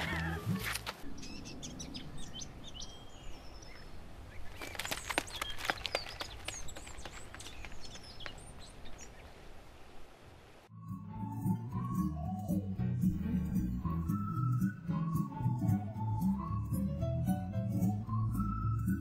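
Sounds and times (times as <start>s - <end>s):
small birds chirping: 0.0s - 9.9s.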